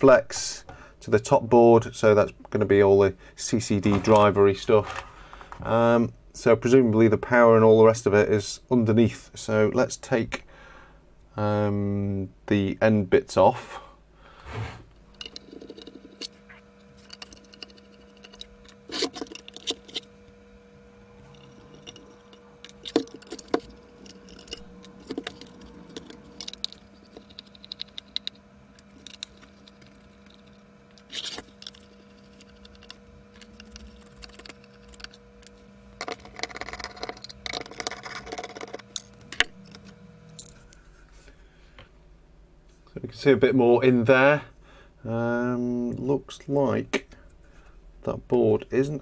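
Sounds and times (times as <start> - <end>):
rattling and scraping: 3.7 - 5.7, 21.2 - 41.2.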